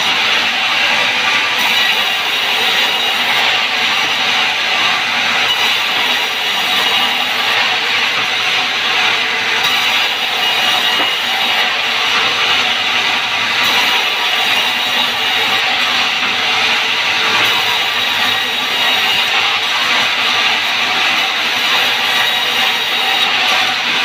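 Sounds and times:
band saw ripping wood: 0:09.6 - 0:12.7.

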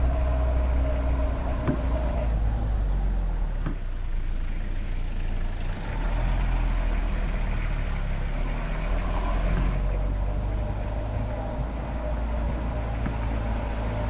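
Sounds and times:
vehicle engine rumbling: 0:00.0 - 0:14.0.

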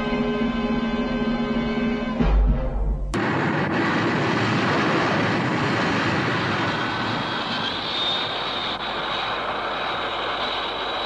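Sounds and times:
faint high whine: 0:03.2 - 0:11.0
rocket engine firing: 0:03.2 - 0:11.0.

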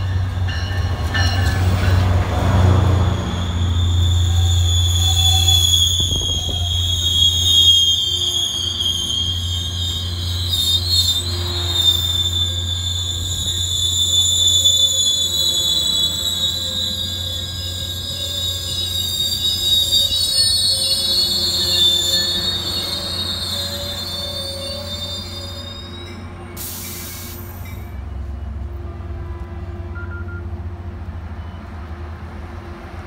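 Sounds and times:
train brakes squealing: 0:00.0 - 0:28.7, 0:29.8 - 0:30.6, 0:31.3 - 0:31.8
low train hum: 0:00.0 - 0:33.0.

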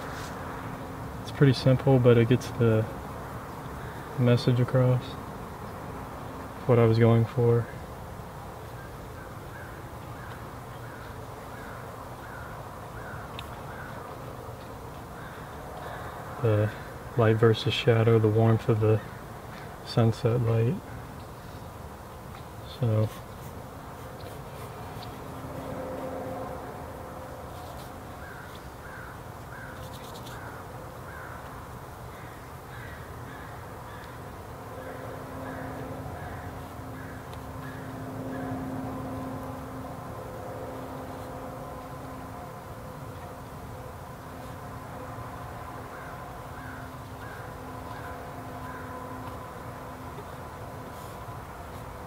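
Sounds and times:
steady low background noise: 0:00.0 - 0:52.0
bird calling: 0:08.7 - 0:14.2, 0:28.1 - 0:38.6, 0:45.9 - 0:49.3
crow cawing: 0:09.2 - 0:14.0, 0:15.2 - 0:17.0, 0:28.2 - 0:38.6, 0:45.9 - 0:49.3.

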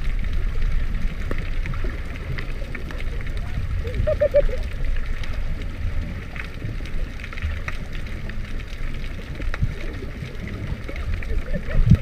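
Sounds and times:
faint clicks and crackles: 0:00.0 - 0:12.0
muffled underwater water rumble: 0:00.0 - 0:12.0.

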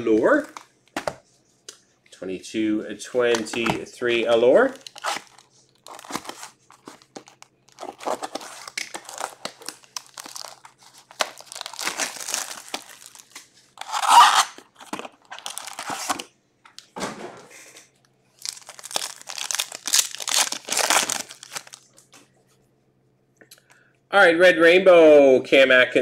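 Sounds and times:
foil packs rustling and crinkling: 0:03.2 - 0:16.3, 0:18.4 - 0:22.0
wrapper tearing: 0:04.6 - 0:16.3, 0:18.4 - 0:21.9.

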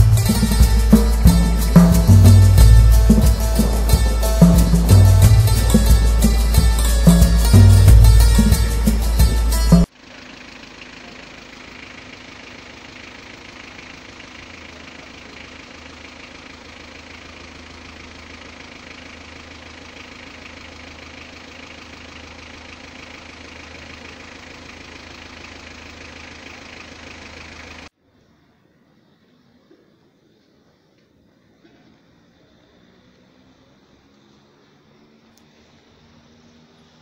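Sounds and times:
vehicle engine idling: 0:00.0 - 0:28.0
street noise: 0:00.0 - 0:37.0.

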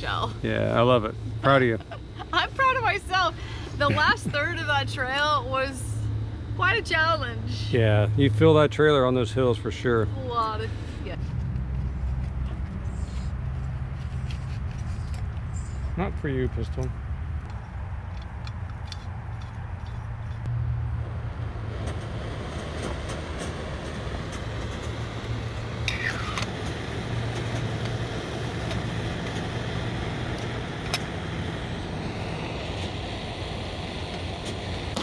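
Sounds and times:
gas stove hissing: 0:23.5 - 0:35.0.

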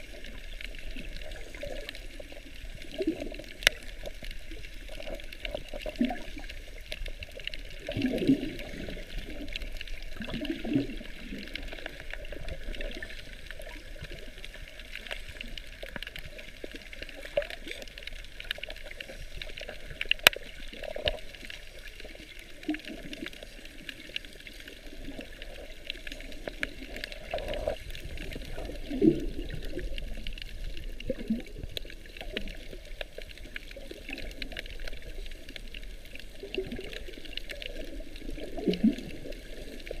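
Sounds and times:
muffled underwater wash: 0:00.0 - 0:40.0
water swishing and gurgling: 0:00.0 - 0:40.0
sharp underwater clicks: 0:00.1 - 0:40.0.

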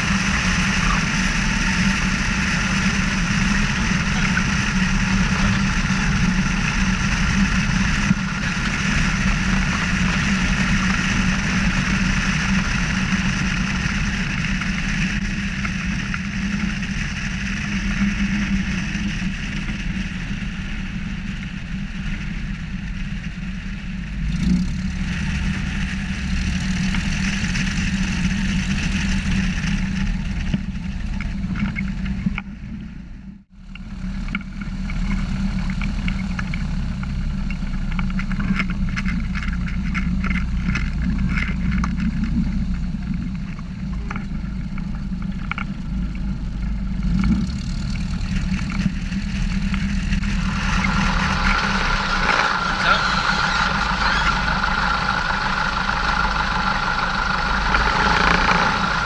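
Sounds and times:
light aircraft engine running: 0:00.0 - 0:59.0
air rushing over microphone: 0:46.6 - 0:59.0.

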